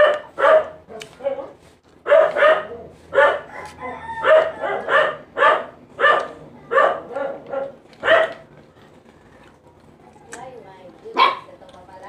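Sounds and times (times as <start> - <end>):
dog barking: 0.0 - 8.4, 11.1 - 11.5.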